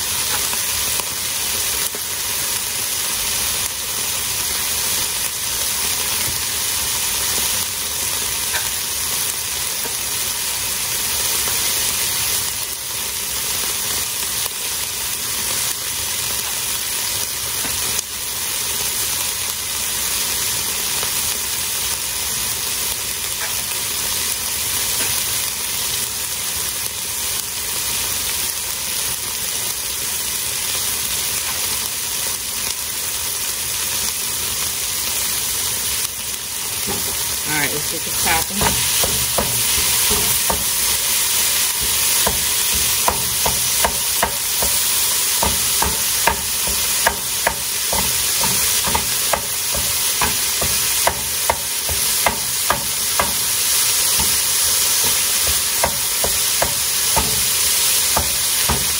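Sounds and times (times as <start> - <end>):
meat sizzling in a frying pan: 0.0 - 58.9
wooden spoon knocking on pan: 36.8 - 37.2, 38.2 - 40.8, 41.8 - 53.5, 54.1 - 58.9.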